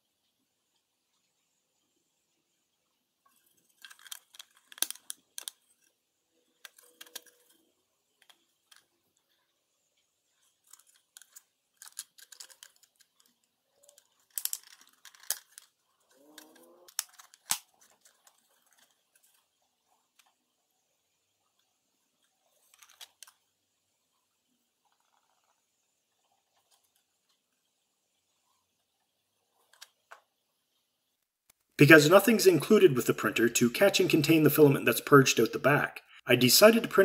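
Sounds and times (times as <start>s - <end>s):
plastic piece squeaking: 6.6s - 8.4s, 10.7s - 19.0s.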